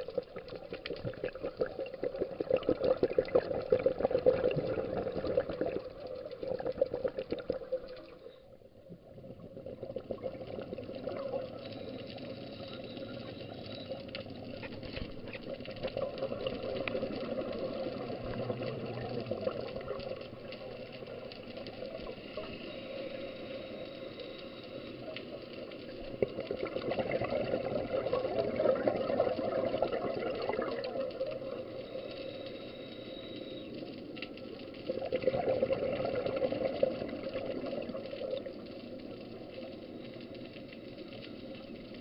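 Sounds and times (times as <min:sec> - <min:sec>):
underwater regulator bubbling: 0:00.0 - 0:08.4, 0:25.7 - 0:32.0, 0:34.9 - 0:38.6.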